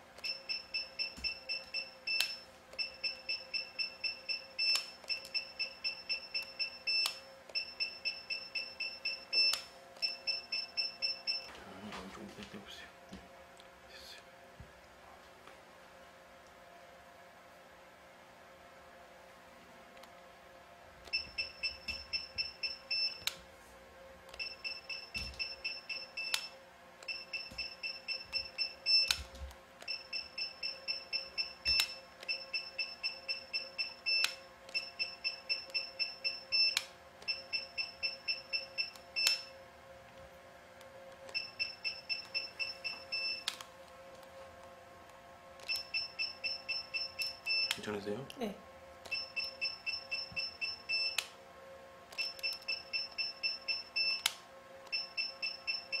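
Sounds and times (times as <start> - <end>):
faint steady hum: 0.0 - 56.0
rapid high beeps: 0.2 - 11.5, 21.1 - 23.2, 24.4 - 26.5, 27.1 - 29.2, 29.9 - 39.5, 41.4 - 43.5, 45.7 - 47.7, 49.1 - 51.2, 52.2 - 54.2, 54.9 - 56.0.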